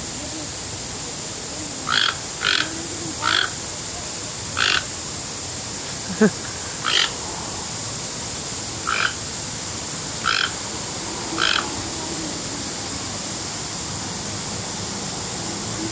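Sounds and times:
steady background hiss: 0.0s - 15.9s
toucan croaking calls: 1.8s - 3.8s, 4.5s - 5.0s, 6.3s - 7.7s, 8.7s - 12.6s.

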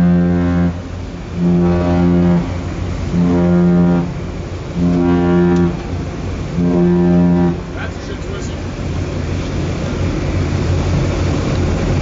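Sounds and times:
ship's horn blasts: 0.0s - 8.8s
low engine hum: 0.0s - 12.0s.

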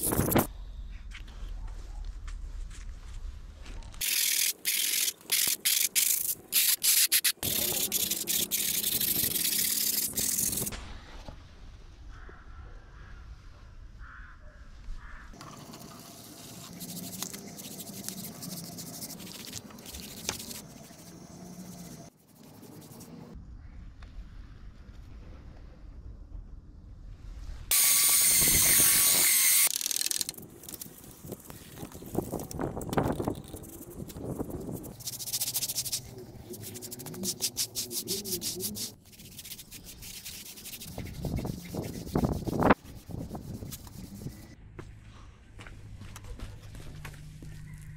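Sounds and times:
brush scrubbing concrete: 7.4s - 10.7s, 15.5s - 23.1s, 33.1s - 44.6s.

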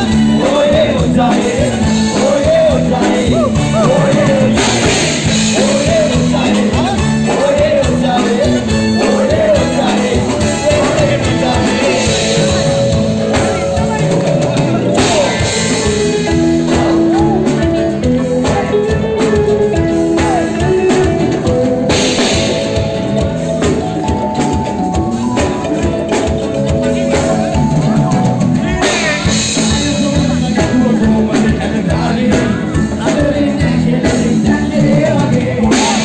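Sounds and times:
dance music with singing: 0.0s - 15.8s
crowd voices: 0.0s - 36.0s.

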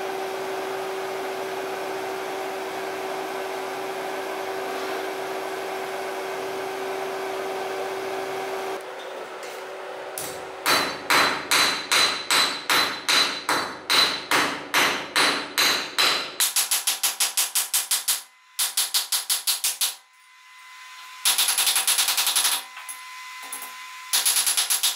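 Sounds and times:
forge blower humming: 0.0s - 12.3s
hammer ringing on anvil: 10.6s - 16.3s.

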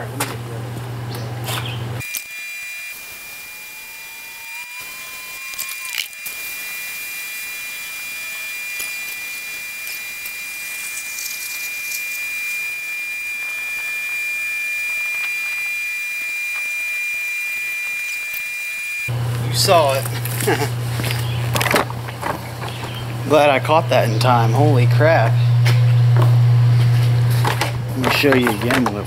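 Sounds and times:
thin high whistle: 6.6s - 19.1s.

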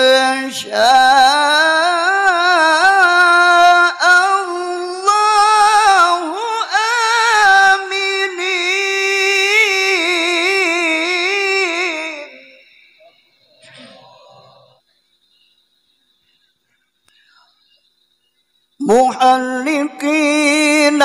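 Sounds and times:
man reciting melodically: 0.0s - 14.2s, 18.8s - 21.0s.

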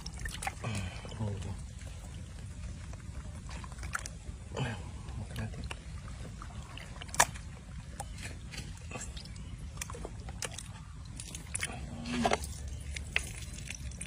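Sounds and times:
wet squelches of tearing guts: 0.0s - 2.0s, 6.5s - 14.0s
low background rumble: 0.0s - 14.0s.

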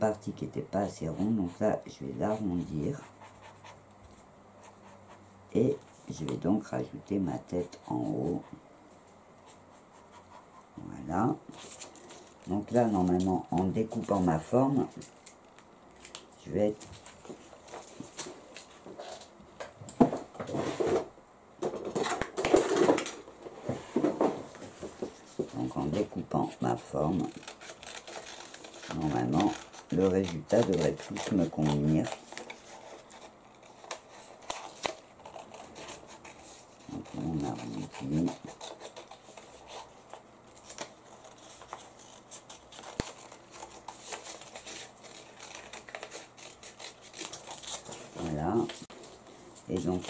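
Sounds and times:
paper rustling: 21.8s - 50.0s.

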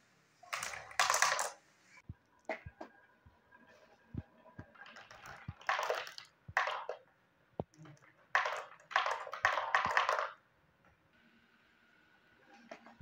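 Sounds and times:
marbles clattering on wooden track: 0.4s - 1.6s, 4.6s - 7.0s, 7.8s - 10.4s
marbles knocking onto wood: 0.5s - 1.6s, 4.6s - 7.0s, 7.6s - 10.4s.

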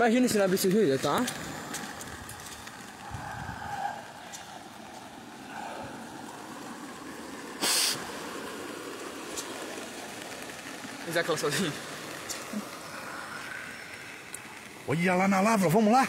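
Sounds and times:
loud rustle: 0.0s - 15.9s.

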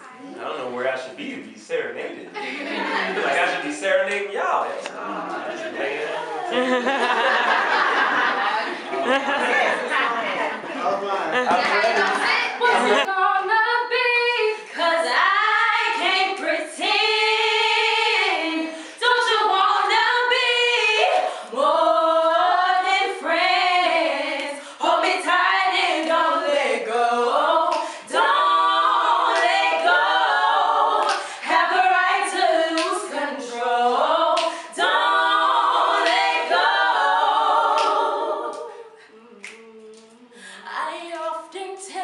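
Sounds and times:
women singing a cappella harmony: 12.0s - 42.0s.

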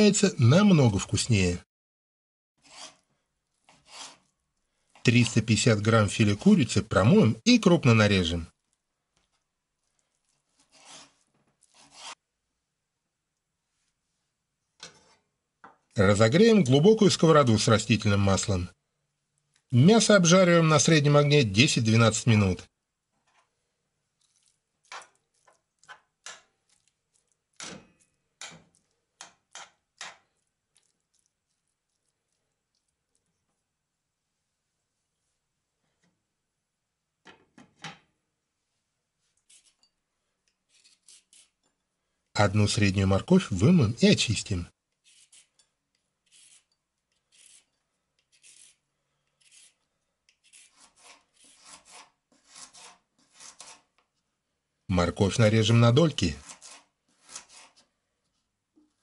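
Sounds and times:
peeler scraping carrot: 2.6s - 4.3s, 10.5s - 12.2s, 39.4s - 39.9s, 40.6s - 41.7s, 44.9s - 53.9s, 56.0s - 57.9s
knife slicing on cutting board: 3.7s - 4.3s, 10.6s - 12.2s, 50.4s - 53.9s
metal spoon scraping frying pan: 10.6s - 12.2s.

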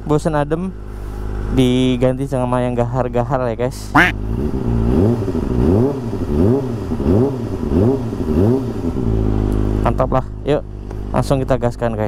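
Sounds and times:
motorcycle engine idling: 0.0s - 4.7s, 6.1s - 12.0s
motorcycle engine revving: 4.0s - 11.5s.

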